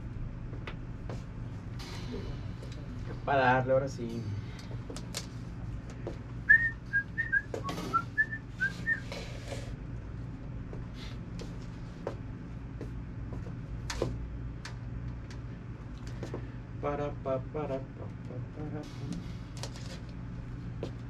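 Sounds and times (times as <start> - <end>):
steady low hum: 0.0 - 21.0
person whistling short notes: 6.5 - 9.1.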